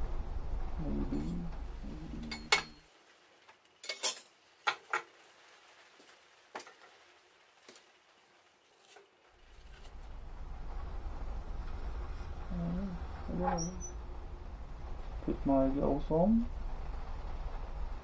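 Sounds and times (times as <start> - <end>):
low hum: 0.0 - 2.8, 9.4 - 18.0
metal clinks and knocks on stove: 2.3 - 2.8.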